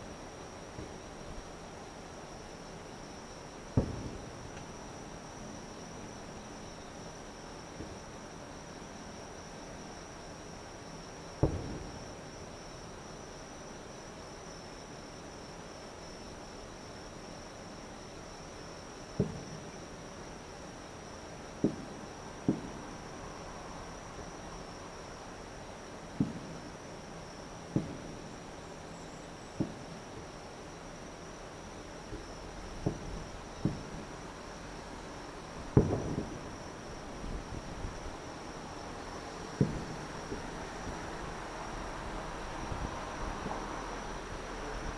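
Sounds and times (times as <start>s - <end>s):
insects chirring: 0.0s - 44.9s
distant firework bangs: 3.7s - 4.7s, 11.4s - 12.2s, 19.2s - 19.6s, 21.6s - 23.0s, 26.2s - 26.6s, 27.7s - 28.2s, 32.8s - 34.1s, 35.7s - 36.7s, 39.5s - 40.6s.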